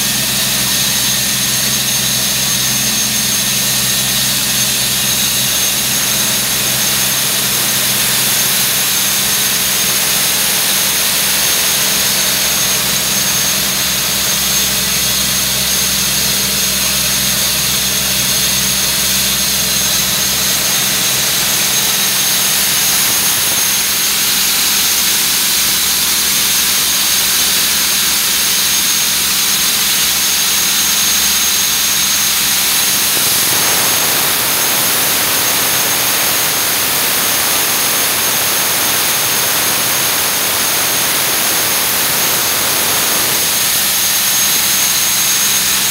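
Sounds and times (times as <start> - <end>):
diesel compressor engine running: 0.0 - 45.9
steady hiss: 30.6 - 45.7.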